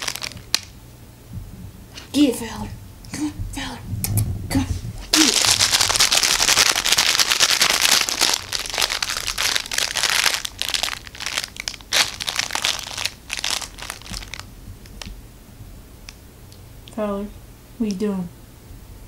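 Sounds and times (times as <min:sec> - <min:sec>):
plush toy crinkling: 0:00.0 - 0:00.7, 0:05.1 - 0:15.2.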